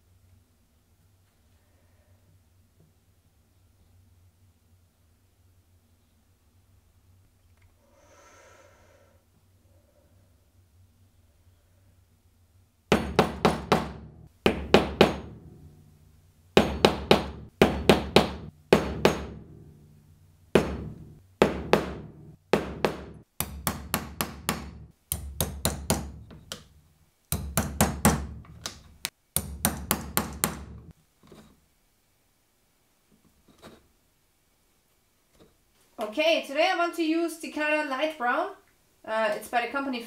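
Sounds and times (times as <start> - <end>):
mallet striking metal stamp: 12.9 - 15.5, 16.6 - 19.5, 20.6 - 26.7, 27.3 - 30.9.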